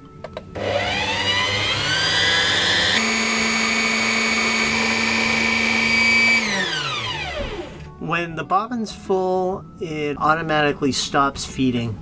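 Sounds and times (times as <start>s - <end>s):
sewing machine motor winding bobbin: 0.6s - 7.9s.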